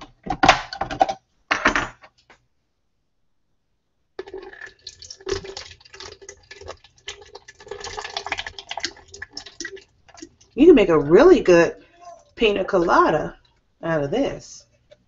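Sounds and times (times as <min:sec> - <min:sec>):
water running from kitchen tap: 0:04.2 - 0:13.3.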